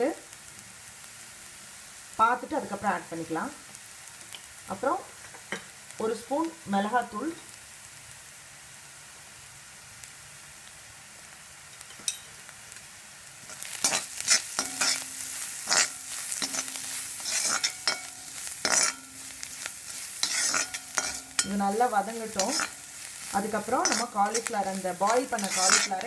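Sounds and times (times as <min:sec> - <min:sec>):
onion and garlic sizzling in oil: 0:00.0 - 0:26.0
metal ladle scraping pan: 0:13.5 - 0:26.0.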